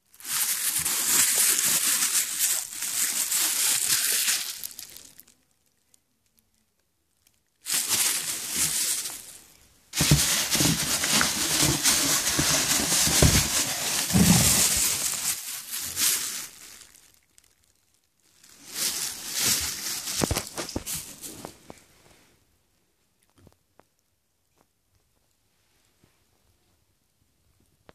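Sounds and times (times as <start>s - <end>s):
plastic wrapping crinkling: 0.0s - 6.6s, 7.2s - 21.9s.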